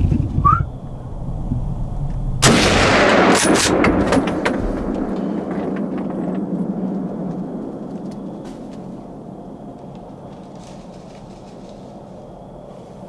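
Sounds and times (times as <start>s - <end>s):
rifle shot: 2.4s - 5.4s.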